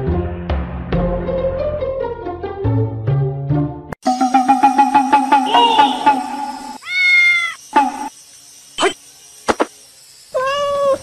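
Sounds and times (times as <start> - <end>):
plucked rhythmic music: 0.9 - 6.8
cat meowing: 6.8 - 7.6, 10.4 - 11.0.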